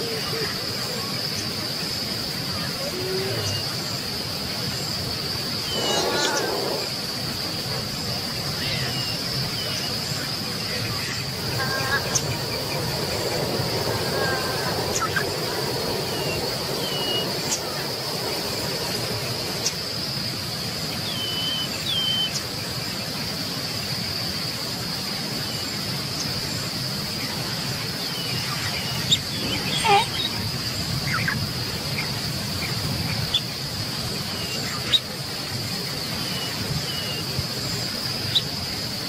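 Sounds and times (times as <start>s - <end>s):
high insect drone: 0.0s - 39.0s
falling bird chirps: 5.6s - 6.9s.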